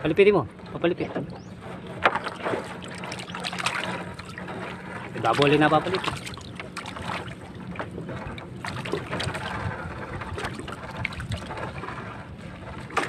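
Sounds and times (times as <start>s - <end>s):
water dripping and splashing: 2.1s - 4.5s, 5.3s - 7.9s.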